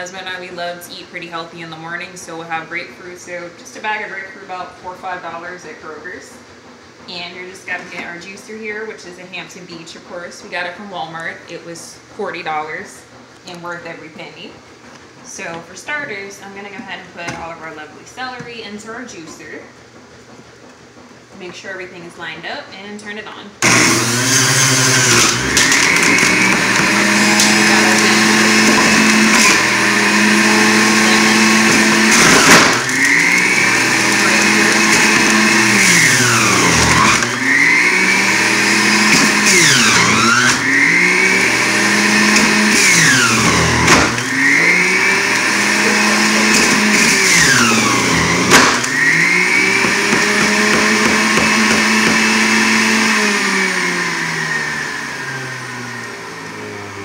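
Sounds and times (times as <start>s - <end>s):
juicer motor whine: 23.6s - 57.0s.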